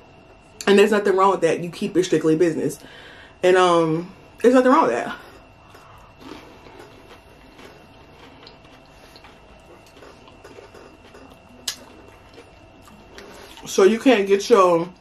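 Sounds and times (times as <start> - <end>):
person chewing: 5.6 - 13.7.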